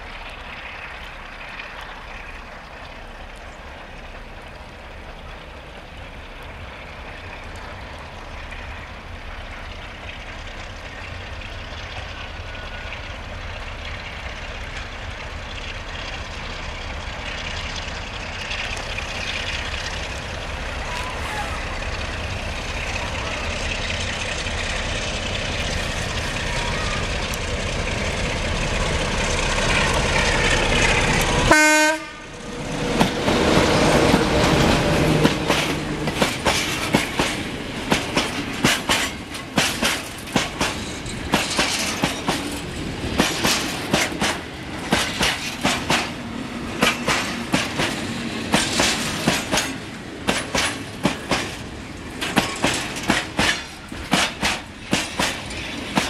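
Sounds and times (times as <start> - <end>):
wheels clacking over rail joints: 0.0 - 31.6, 32.3 - 56.0
diesel locomotive engine: 0.0 - 56.0
train horn blast: 31.5 - 32.4.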